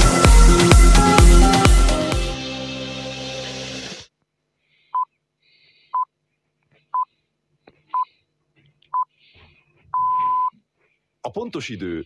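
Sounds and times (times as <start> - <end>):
electronic music: 0.0 - 4.1.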